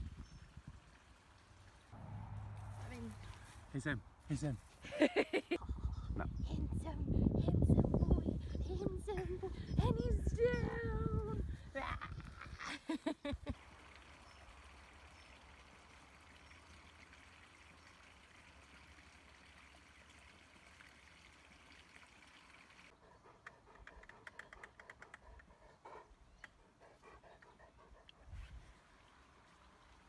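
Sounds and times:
faint outdoor hiss: 0:00.0 - 0:05.6, 0:11.4 - 0:23.4.

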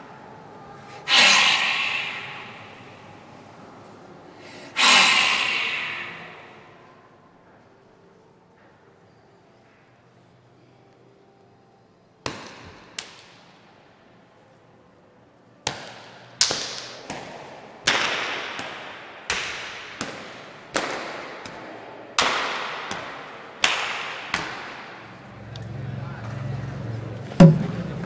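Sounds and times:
sharp percussive cracks echoing: 0:15.7 - 0:25.1.

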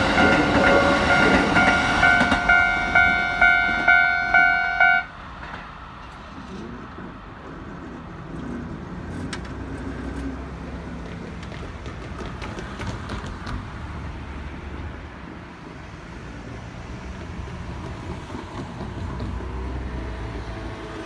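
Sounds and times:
road traffic rumble: 0:00.0 - 0:21.0.

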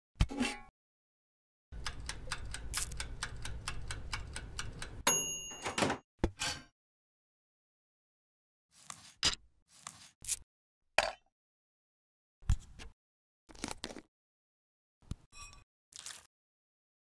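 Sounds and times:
timer ticking: 0:01.8 - 0:05.0
toaster oven humming: 0:01.8 - 0:05.0
timer bell ding: 0:05.1 - 0:05.9.

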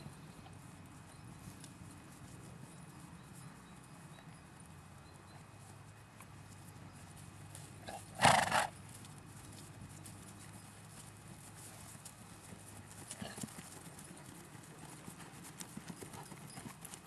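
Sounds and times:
horse hoofbeats on grass: 0:00.0 - 0:17.0.

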